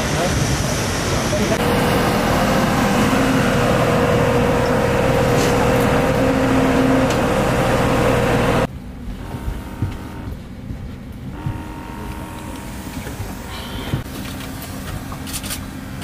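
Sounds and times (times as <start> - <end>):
jet aircraft whine and rumble: 0.0 - 16.0
aircraft cabin hum: 1.6 - 15.8.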